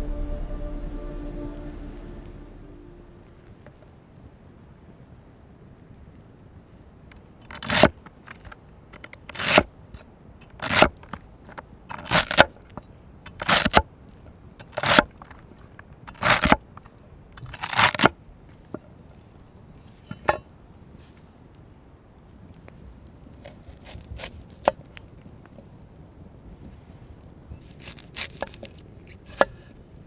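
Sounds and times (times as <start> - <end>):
knife cutting celery on wooden board: 16.1 - 16.5, 27.6 - 29.6.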